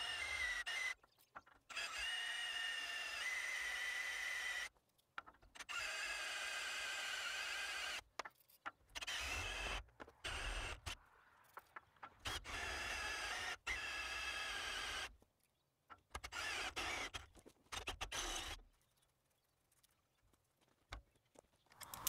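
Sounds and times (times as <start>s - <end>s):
cordless drill boring through metal: 0.0s - 4.7s, 5.6s - 8.1s, 9.0s - 11.0s, 12.2s - 15.1s, 16.2s - 18.6s.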